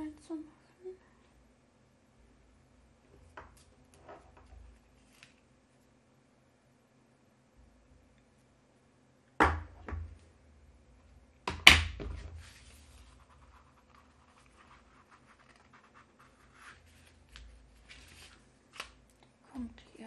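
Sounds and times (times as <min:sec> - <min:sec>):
paper card sliding on mat: 0:12.2 - 0:13.3.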